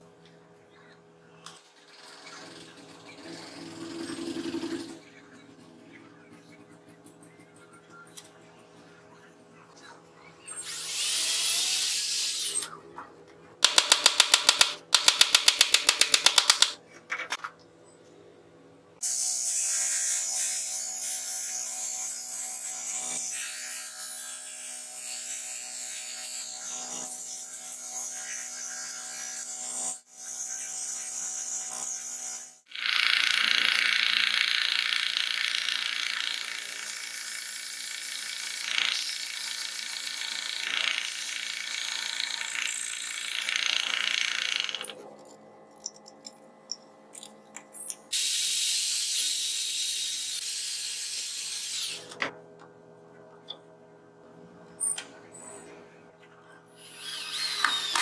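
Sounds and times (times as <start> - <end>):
hole saw cutting plastic: 56.8 - 58.0.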